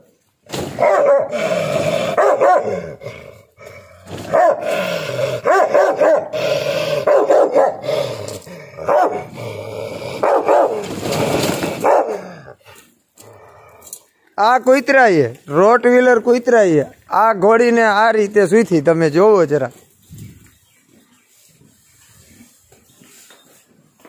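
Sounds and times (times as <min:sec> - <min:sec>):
dog barking and growling: 0:00.7 - 0:13.9.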